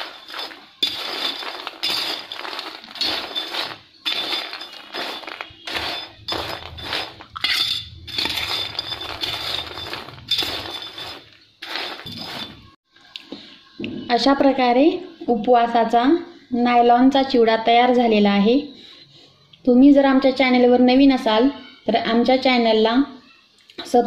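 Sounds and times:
spoon scraping steel plate: 0:00.0 - 0:12.7.

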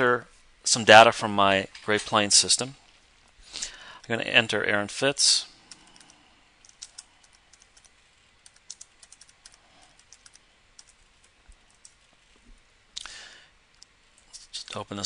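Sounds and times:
keyboard typing clicks: 0:05.7 - 0:12.0.

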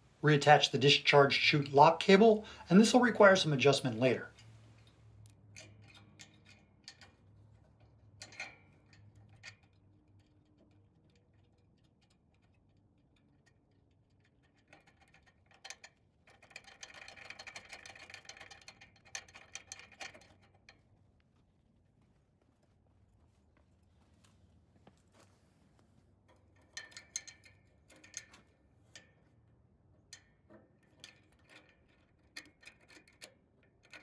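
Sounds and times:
small metal clicks: 0:04.3 - 0:21.5, 0:26.2 - 0:34.0.

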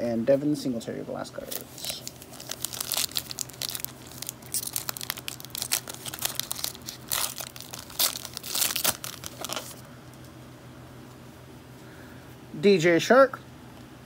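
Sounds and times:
cellophane wrapper crinkling and tearing: 0:01.4 - 0:09.9.

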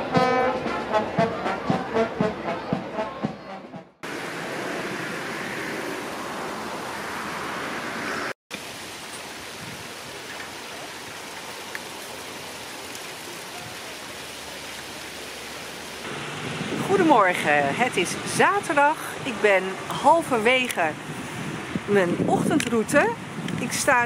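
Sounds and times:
brass band music: 0:00.0 - 0:04.0
fountain water rushing: 0:04.0 - 0:24.0.

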